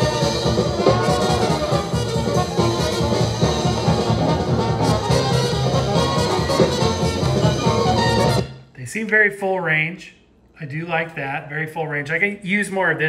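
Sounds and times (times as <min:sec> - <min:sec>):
jazz music with brass: 0:00.0 - 0:08.6.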